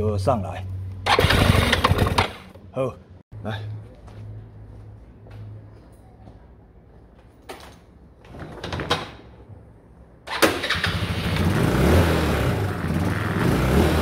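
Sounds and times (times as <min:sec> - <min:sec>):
scooter engine starting and running: 0:01.0 - 0:02.6, 0:10.3 - 0:14.0.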